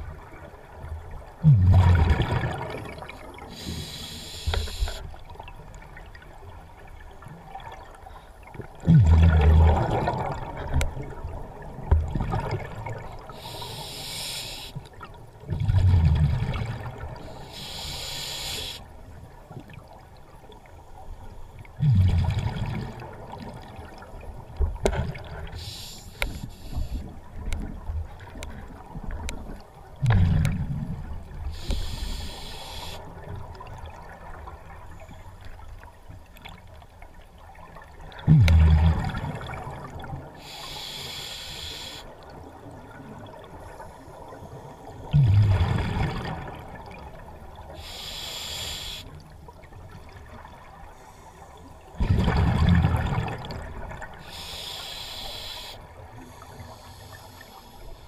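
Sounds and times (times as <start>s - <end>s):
bubbles rumbling on exhalation: 1.4s - 3.0s, 8.8s - 10.7s, 38.2s - 39.7s, 52.0s - 53.7s
regulator hiss on inhalation: 3.6s - 5.1s, 13.3s - 14.8s, 17.3s - 18.9s, 25.6s - 27.1s, 31.5s - 33.1s, 40.4s - 42.1s, 47.8s - 49.2s, 54.2s - 58.0s.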